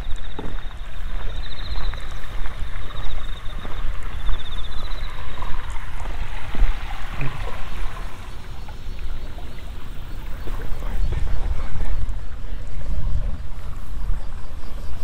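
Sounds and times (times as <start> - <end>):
insect trilling: 0.0 - 10.2
wind buffeting microphone: 0.0 - 15.0.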